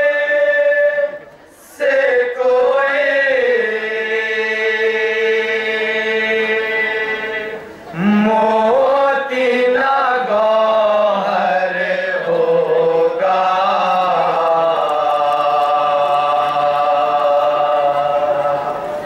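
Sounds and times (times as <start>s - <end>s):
man chanting a lament: 1.8s - 18.9s.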